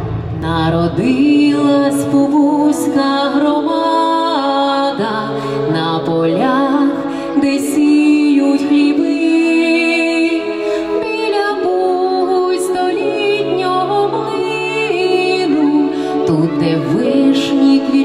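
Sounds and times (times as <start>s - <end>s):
woman singing slow melody: 0.4s - 18.0s.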